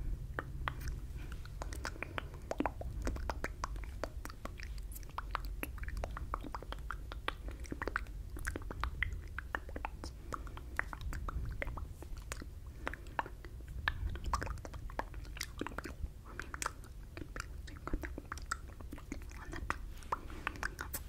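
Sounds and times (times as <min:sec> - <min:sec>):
wet mouth sounds: 0:00.0 - 0:21.0.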